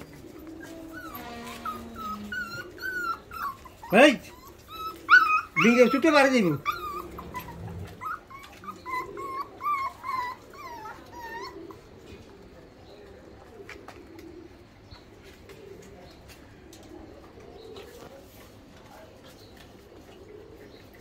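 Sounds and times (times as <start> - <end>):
puppies whimpering: 0.0 - 12.9.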